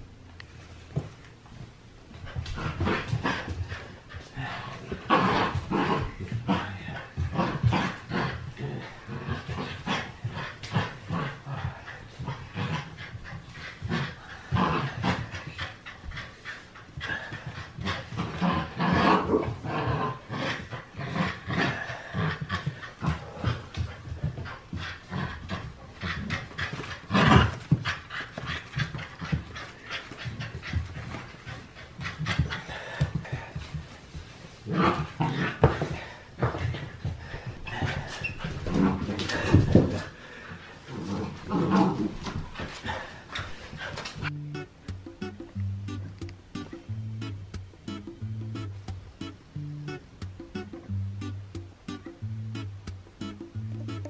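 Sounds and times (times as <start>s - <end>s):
paws scuffling on laminate floor: 0.6s - 44.3s
puppy panting: 2.2s - 41.4s.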